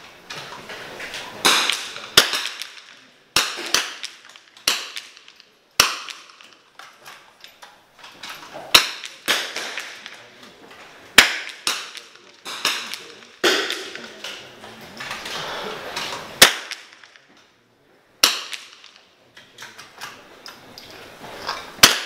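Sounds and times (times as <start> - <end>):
rifle cracks with echo: 1.4 - 6.9, 8.6 - 10.4, 11.2 - 14.4, 16.4 - 17.3, 18.2 - 19.1, 21.8 - 22.0.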